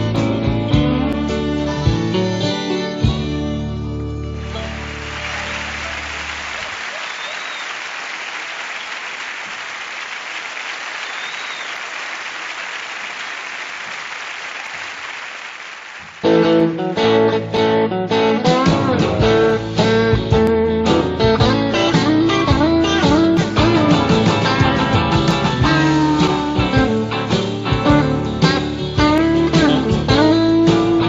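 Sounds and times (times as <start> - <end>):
country band playing: 0.0 - 6.8, 16.2 - 31.0
audience applause: 4.4 - 16.4.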